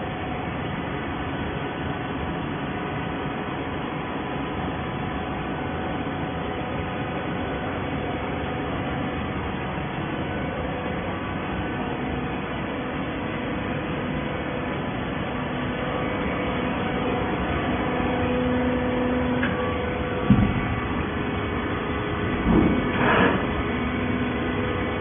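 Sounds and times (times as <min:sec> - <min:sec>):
baling machine droning: 0:00.0 - 0:25.0.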